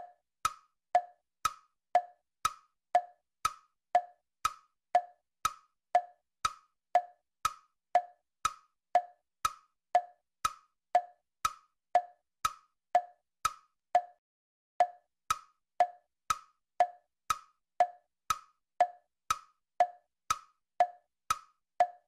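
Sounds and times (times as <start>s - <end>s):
wood-block tick-tock clicks: 0.0s - 14.2s, 14.8s - 22.0s.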